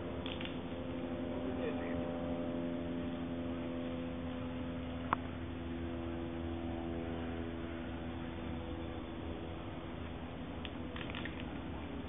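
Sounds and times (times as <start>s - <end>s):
mechanical hum: 0.0s - 12.0s
sharp click: 0.2s - 0.6s, 10.6s - 11.6s.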